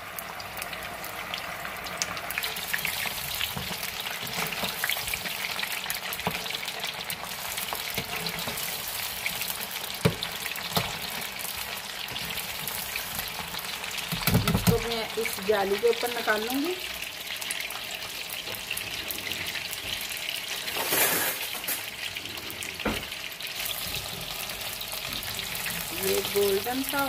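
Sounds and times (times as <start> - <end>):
chicken deep-frying in oil: 0.0 - 27.0
metal spatula stirring: 2.4 - 14.8, 23.6 - 26.4.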